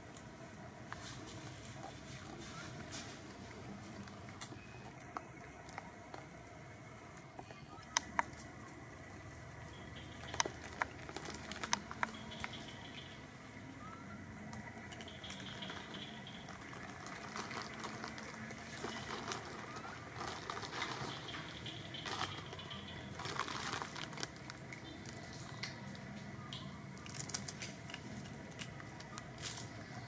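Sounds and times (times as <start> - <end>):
faint outdoor hum: 0.0 - 30.0
rustling and crackling clicks: 10.0 - 13.0, 14.5 - 26.1.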